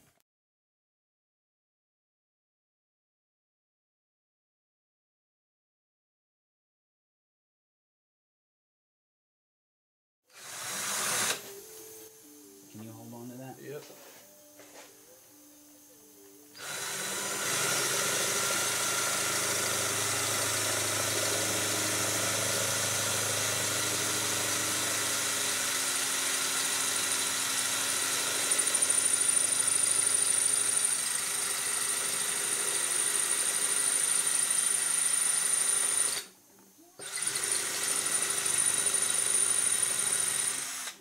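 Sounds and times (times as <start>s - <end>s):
power drill drilling: 10.3s - 11.6s, 16.6s - 36.3s, 37.0s - 41.0s.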